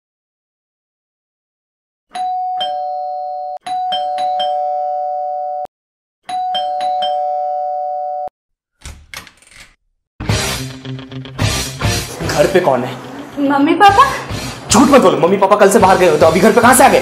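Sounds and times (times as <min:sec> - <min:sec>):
doorbell two-tone chime: 0:02.1 - 0:05.7, 0:06.3 - 0:08.3.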